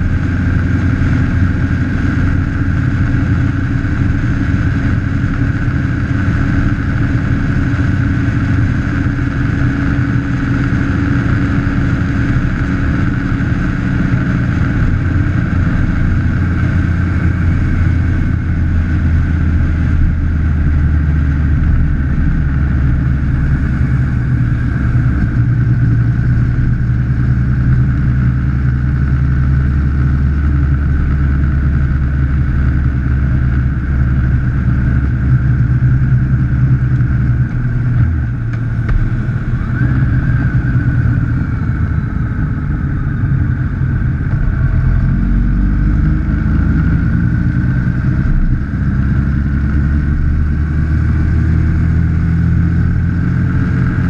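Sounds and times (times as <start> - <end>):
road and wind noise: 0.0 - 54.0
vehicle engine running: 0.0 - 54.0
short rising whine: 10.9 - 54.0.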